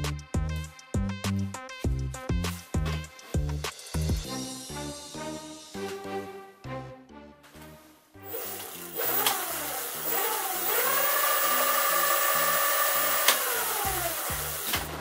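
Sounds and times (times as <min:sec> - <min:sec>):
background music with steady beat: 0:00.0 - 0:10.8
electric hub motor whining: 0:08.2 - 0:15.0.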